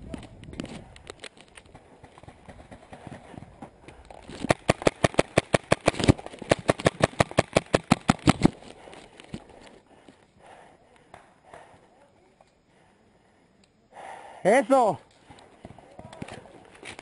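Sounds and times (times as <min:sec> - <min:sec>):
paintball marker firing: 0:04.4 - 0:08.6
quiet movement: 0:08.4 - 0:13.9.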